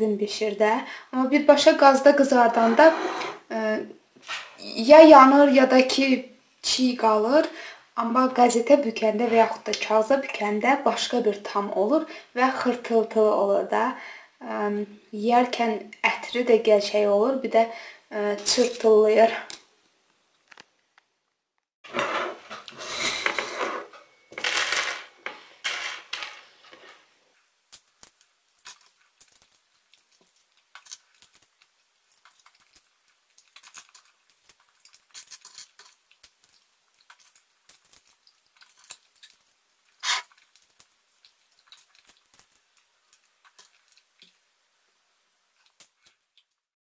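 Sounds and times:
seeds cracking open: 0:27.7 - 0:39.5
seeds rattling on a glass plate: 0:27.7 - 0:44.0.

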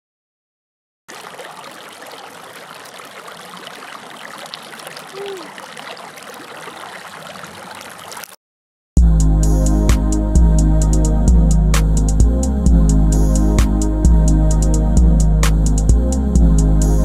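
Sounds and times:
creek water running over rocks: 0:01.1 - 0:08.4.

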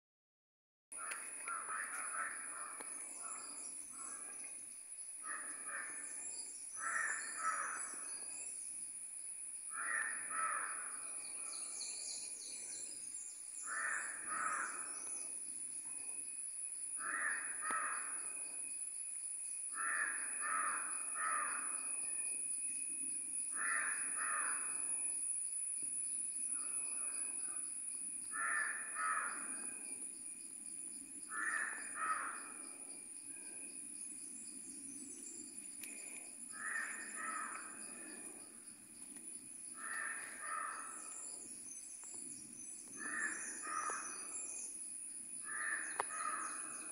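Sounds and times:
crows cawing: 0:01.0 - 0:03.4, 0:05.2 - 0:06.0, 0:06.8 - 0:08.0, 0:09.7 - 0:11.1, 0:13.6 - 0:15.0, 0:17.0 - 0:18.2, 0:19.7 - 0:21.8, 0:23.5 - 0:24.8, 0:28.3 - 0:29.6, 0:31.3 - 0:32.6, 0:36.5 - 0:37.7, 0:39.8 - 0:41.1, 0:43.0 - 0:44.3, 0:45.4 - 0:46.9.

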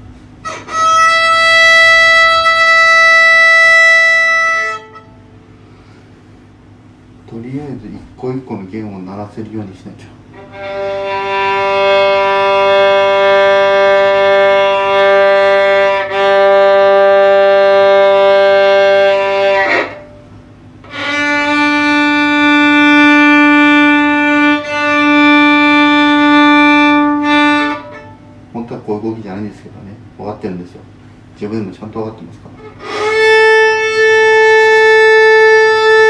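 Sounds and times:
violin long bowed notes: 0:00.4 - 0:05.4, 0:10.3 - 0:28.6, 0:32.6 - 0:36.0.

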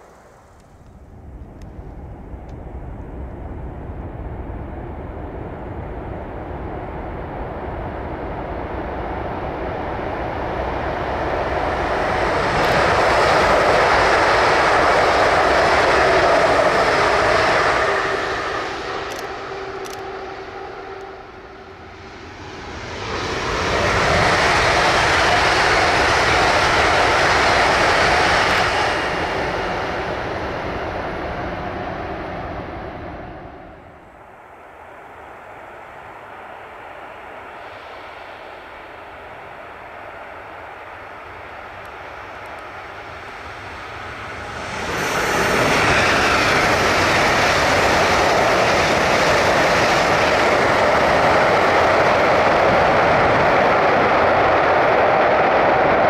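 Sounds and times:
high-speed train rushing past: 0:00.0 - 0:56.0.

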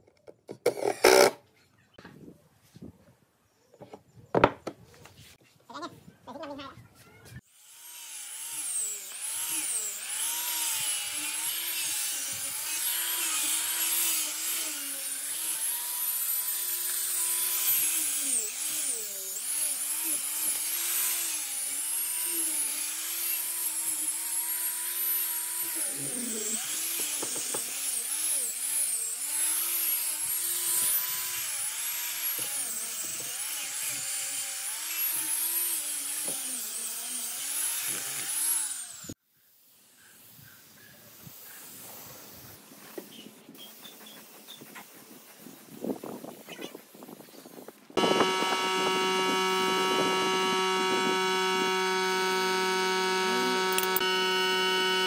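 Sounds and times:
angle grinder sanding wood: 0:07.6 - 0:39.1, 0:48.0 - 0:55.0.

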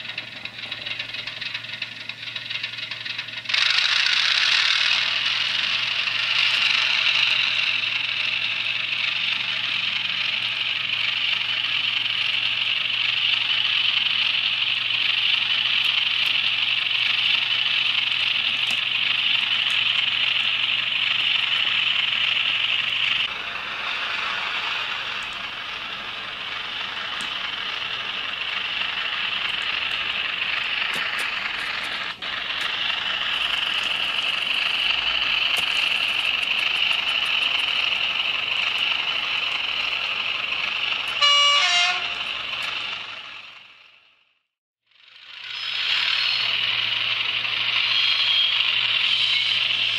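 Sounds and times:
diesel engine sound from small speaker: 0:00.0 - 0:49.9
short horn blast: 0:41.2 - 0:42.2.

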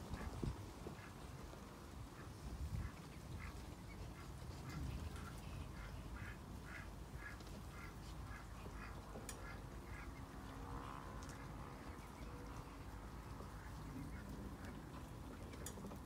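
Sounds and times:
duck quacking: 0:04.1 - 0:10.2.

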